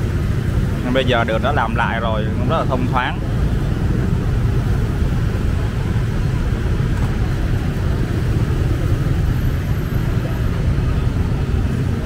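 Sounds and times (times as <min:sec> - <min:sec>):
low rumble of street traffic: 0:00.0 - 0:12.0
motorbikes passing: 0:00.0 - 0:12.0.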